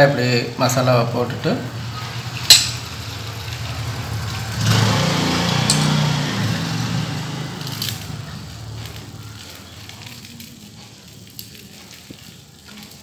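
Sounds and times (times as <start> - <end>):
vehicle engine hum: 1.7 - 11.2.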